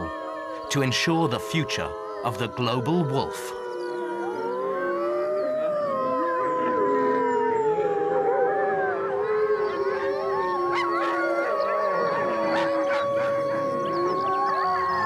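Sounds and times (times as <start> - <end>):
wolves howling in chorus: 0.0 - 15.0.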